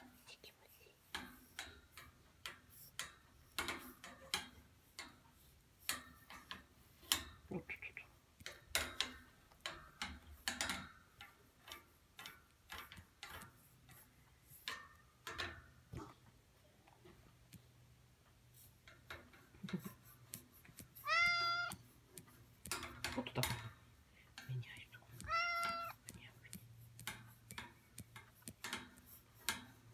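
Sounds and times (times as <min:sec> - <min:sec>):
cat meowing: 0:21.0 - 0:21.8, 0:25.2 - 0:26.0.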